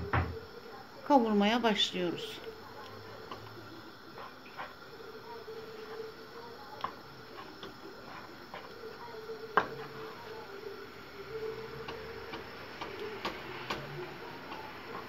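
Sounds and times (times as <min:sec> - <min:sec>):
wooden spoon scraping frying pan: 0:03.1 - 0:06.2, 0:06.8 - 0:10.5.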